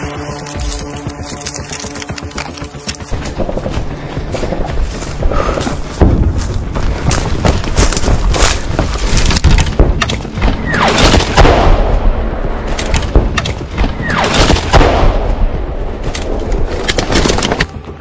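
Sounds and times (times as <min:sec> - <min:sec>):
sharp cracks: 0:07.7 - 0:12.0
heavy explosion: 0:09.8 - 0:12.4, 0:13.1 - 0:15.7.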